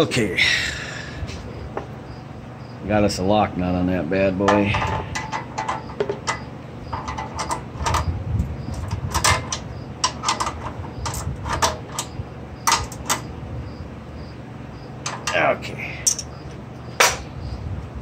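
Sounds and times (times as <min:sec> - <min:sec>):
wrenches clinking on metal: 0:04.4 - 0:08.1, 0:15.0 - 0:16.3.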